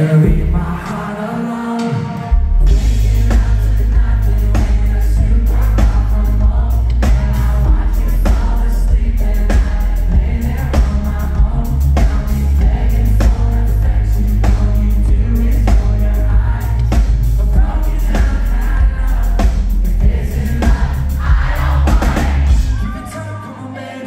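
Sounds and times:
live pop band playing: 0:00.0 - 0:24.0
person singing: 0:00.0 - 0:24.0.

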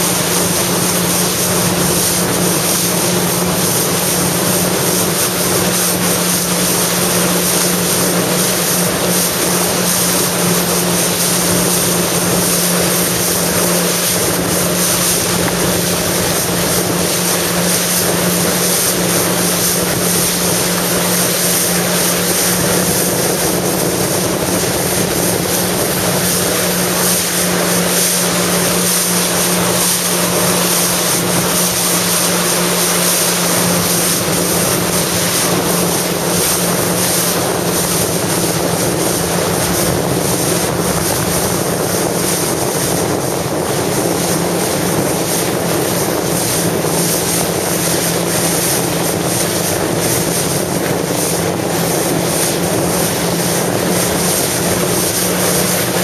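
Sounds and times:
jet ski engine droning: 0:00.0 - 0:56.0
water rushing: 0:00.0 - 0:56.0
wind on microphone: 0:00.0 - 0:56.0.

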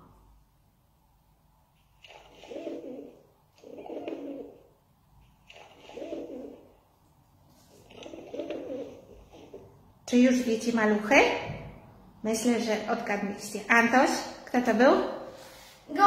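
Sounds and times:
pigeon cooing: 0:02.0 - 0:04.8, 0:05.4 - 0:06.8, 0:07.7 - 0:09.8.

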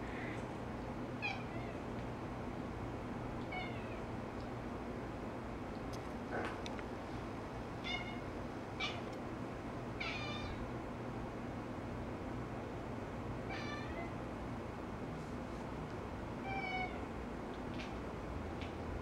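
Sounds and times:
cat chirping: 0:07.8 - 0:08.2, 0:08.8 - 0:09.1, 0:10.0 - 0:10.6.

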